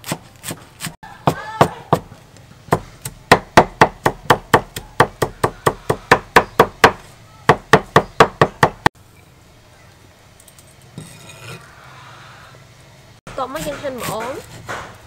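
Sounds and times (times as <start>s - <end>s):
cleaver chopping on wooden board: 2.7s - 8.9s, 13.6s - 15.0s.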